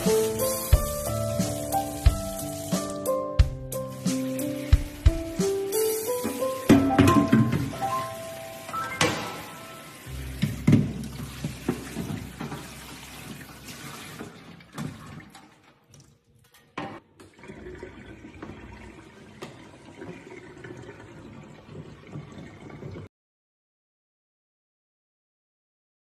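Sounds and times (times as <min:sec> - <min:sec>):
water splashing into steel sink: 0:03.9 - 0:23.1.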